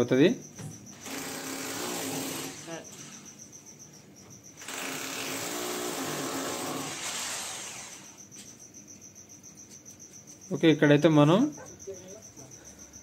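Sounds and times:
cricket chirping: 0.0 - 13.0
hammer drill boring into wall: 1.0 - 3.1, 4.6 - 8.2.

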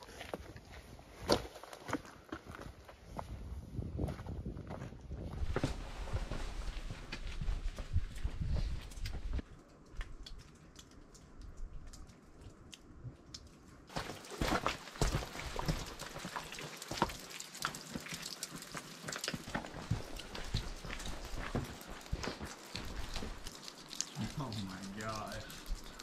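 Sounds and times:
footsteps crunching on dirt trail: 0.0 - 9.4, 13.9 - 23.6.

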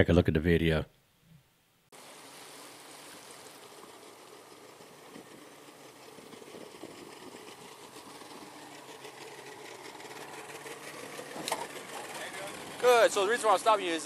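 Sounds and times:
water noise: 1.9 - 14.0
boat motor idling: 3.2 - 14.0.

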